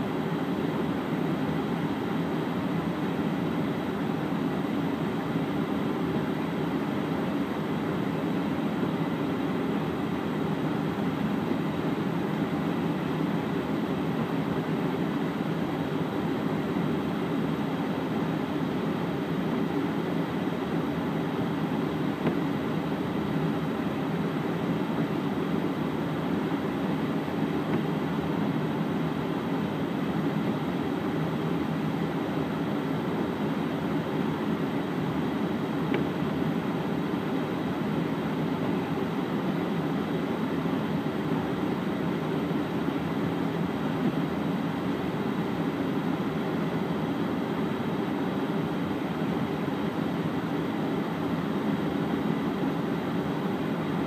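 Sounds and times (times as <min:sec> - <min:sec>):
engine drone inside vehicle: 0:00.0 - 0:54.0.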